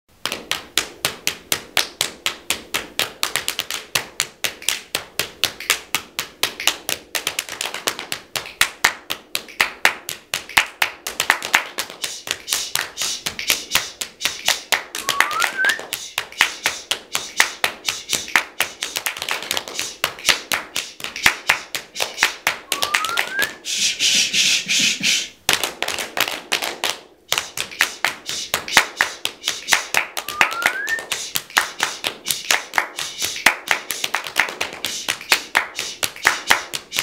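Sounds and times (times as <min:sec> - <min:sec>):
hands clapping and slapping: 0:00.2 - 0:23.6, 0:24.2 - 0:37.0.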